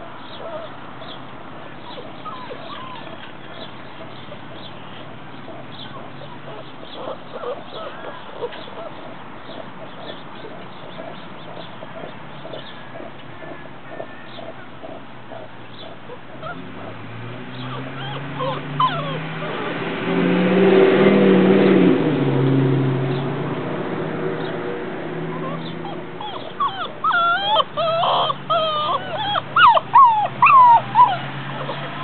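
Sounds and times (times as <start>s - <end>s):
puppies whining and yipping: 0.0s - 1.2s, 1.9s - 4.6s, 5.4s - 17.0s, 17.6s - 19.6s, 25.3s - 32.0s.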